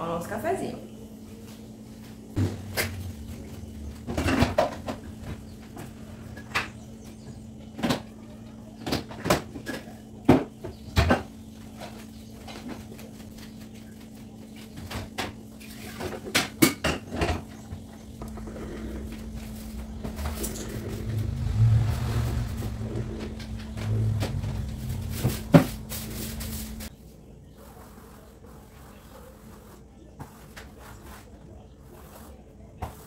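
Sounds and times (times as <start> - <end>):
steady low hum: 0.0 - 29.6
loud low noise: 18.2 - 26.9.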